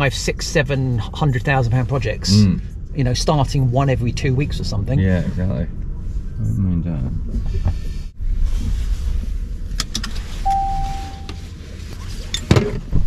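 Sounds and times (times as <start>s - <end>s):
low car cabin rumble: 0.0s - 13.0s
seat belt unbuckling clicks: 9.8s - 10.2s
electronic beep: 10.4s - 11.4s.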